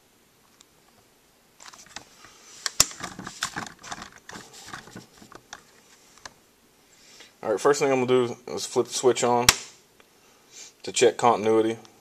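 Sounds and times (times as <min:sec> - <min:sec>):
sharp click: 0:09.5 - 0:09.8.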